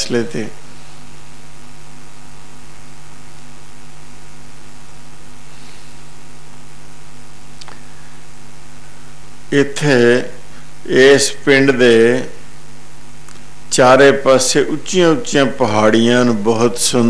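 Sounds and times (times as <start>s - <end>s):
electrical mains hum: 0.0s - 17.0s
microphone hiss: 0.0s - 17.0s
faint click: 7.6s - 7.8s.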